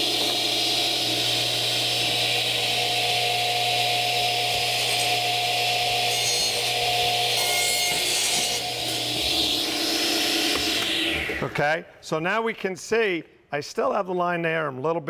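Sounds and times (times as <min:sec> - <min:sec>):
saw cutting into board: 0:00.0 - 0:11.5.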